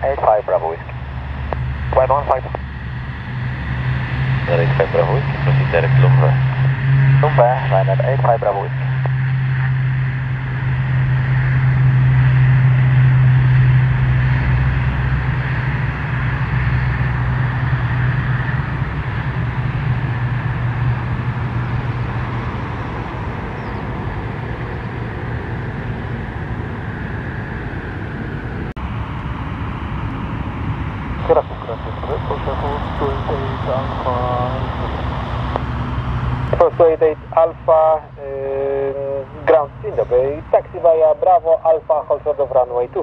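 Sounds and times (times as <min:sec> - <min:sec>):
turboprop aircraft taking off: 0:00.0 - 0:43.0.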